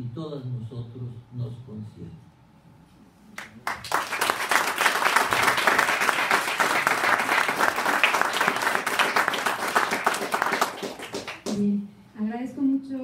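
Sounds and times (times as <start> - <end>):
crowd clapping: 3.4 - 11.7.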